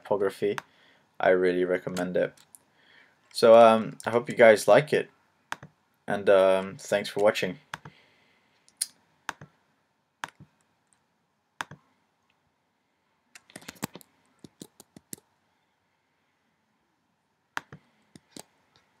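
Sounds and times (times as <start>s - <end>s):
mouse and keyboard clicks: 13.4s - 15.3s.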